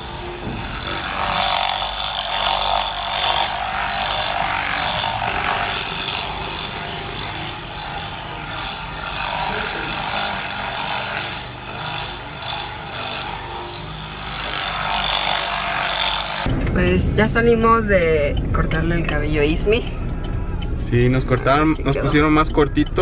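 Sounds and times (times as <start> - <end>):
electric massager buzzing: 0.0 - 16.5.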